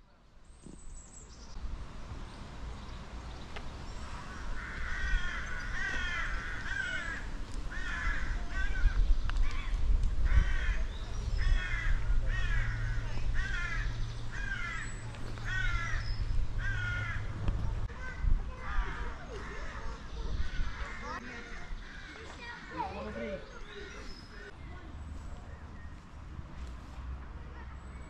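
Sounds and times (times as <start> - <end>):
birds calling: 0.4 - 26.1
steady low rumble: 8.4 - 18.5.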